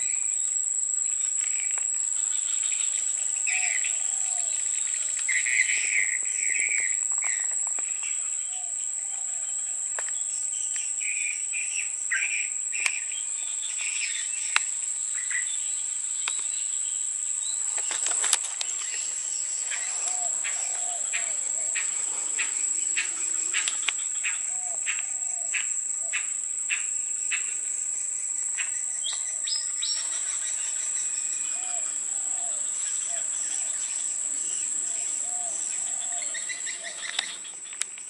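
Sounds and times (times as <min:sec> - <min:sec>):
crickets trilling: 0:00.0 - 0:38.0
bird chirps: 0:28.6 - 0:37.9.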